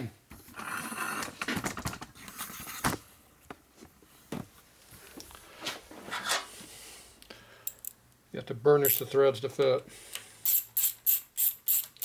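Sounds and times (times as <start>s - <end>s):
rustling and scraping on workbench: 3.8s - 6.7s.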